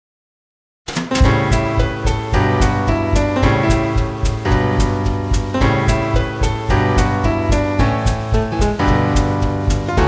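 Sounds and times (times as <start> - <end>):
piano chords: 0.9 - 10.0
steady drum beat: 0.9 - 10.0.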